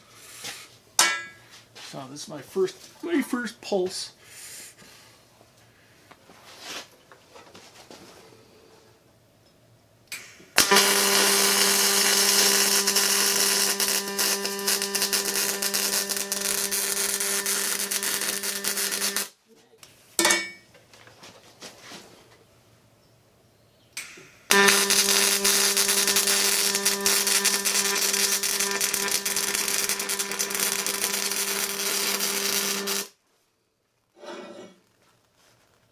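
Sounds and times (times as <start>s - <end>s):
welding arc buzzing: 10.1s - 19.4s, 24.0s - 33.2s.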